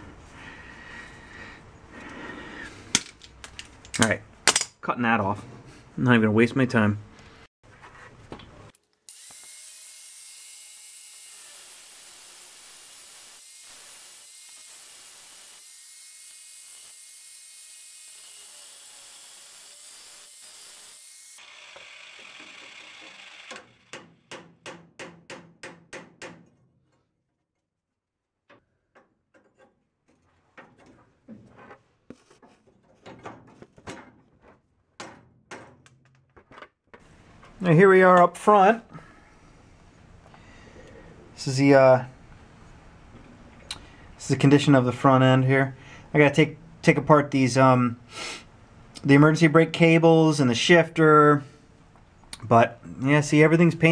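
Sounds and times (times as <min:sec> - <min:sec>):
cutoff tool cutting steel: 0:09.1 - 0:24.1
hammer knocking on metal rod: 0:23.9 - 0:26.4.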